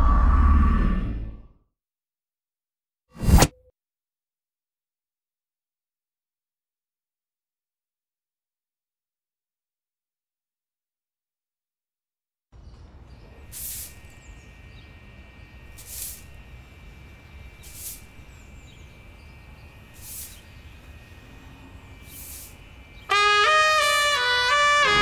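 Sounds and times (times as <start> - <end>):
low rumbling ambience: 0.0 - 1.5, 12.6 - 23.4
short hiss: 13.5 - 14.8, 15.7 - 18.9, 20.0 - 20.8, 22.0 - 22.8.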